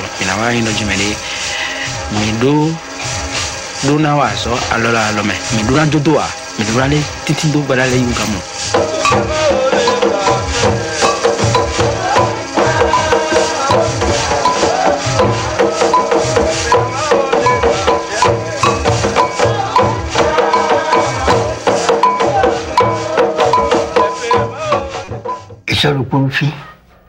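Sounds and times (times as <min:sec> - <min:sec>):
ceremonial chanting: 0:00.0 - 0:25.4
struck percussion beat: 0:00.0 - 0:25.9.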